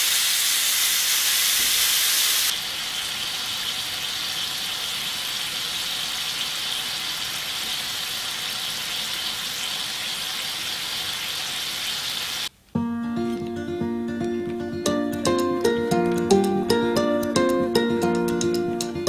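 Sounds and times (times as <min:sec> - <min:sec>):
meat sizzling on a griddle: 0:00.0 - 0:12.5.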